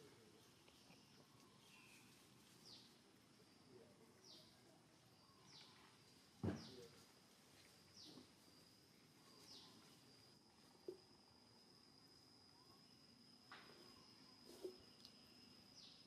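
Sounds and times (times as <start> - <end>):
bird chirping: 0.0 - 11.0, 12.5 - 16.0
insect buzz: 7.9 - 16.0.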